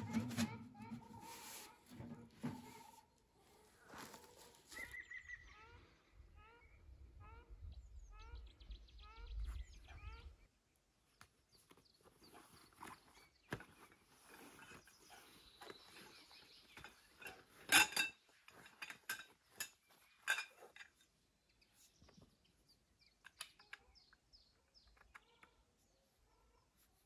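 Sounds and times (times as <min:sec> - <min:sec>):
camp cookware clinking: 0:00.0 - 0:03.0, 0:12.8 - 0:21.2
faint bird chirps: 0:02.7 - 0:10.8.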